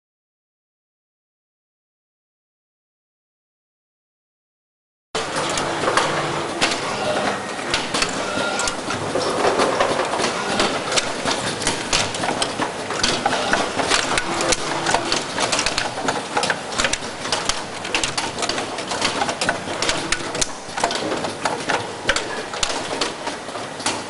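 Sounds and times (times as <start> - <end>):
machine clicks and clatters: 5.2 - 24.0
steady machinery noise: 5.2 - 24.0.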